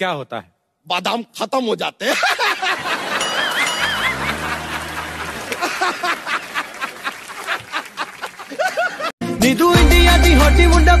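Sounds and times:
people laughing loudly: 2.0 - 9.1
wobbling high tone: 3.2 - 5.4.

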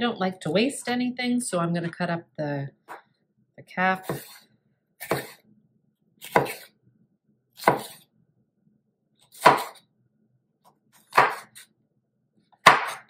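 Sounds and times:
knife chopping on wooden board: 4.0 - 4.4, 5.0 - 5.4, 6.2 - 6.7, 7.6 - 8.0, 9.3 - 9.8, 11.1 - 11.6, 12.6 - 13.0.

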